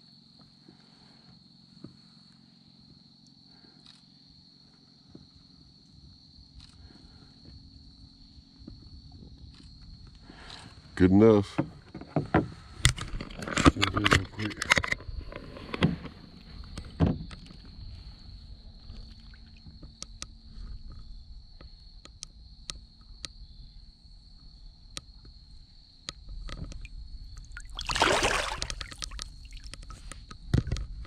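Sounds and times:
water dripping and trickling: 26.6 - 29.9
fish splash: 27.4 - 29.7.

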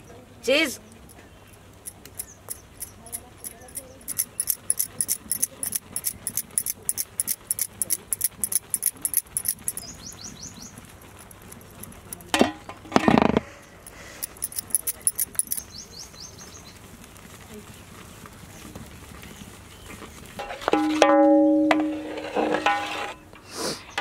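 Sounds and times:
cheese grating on metal grater: 1.8 - 9.9, 10.9 - 12.3, 13.8 - 15.6.

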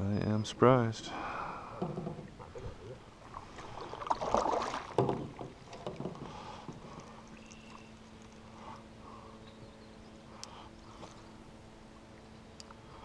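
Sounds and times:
water sloshing against a hull: 1.0 - 13.0
knocks and clatter inside a metal canoe: 1.8 - 3.0, 4.0 - 7.7.

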